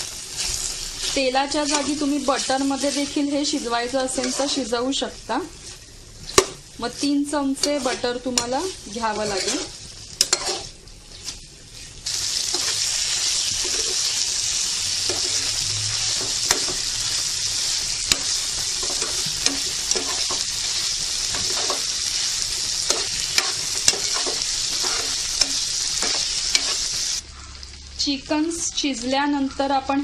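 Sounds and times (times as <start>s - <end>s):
chicken sizzling in a frying pan: 0.0s - 30.0s
spatula scraping and tapping pan: 1.0s - 2.5s, 4.1s - 4.7s, 7.5s - 11.4s, 13.5s - 14.1s, 15.1s - 16.9s, 18.0s - 20.5s, 21.2s - 27.0s.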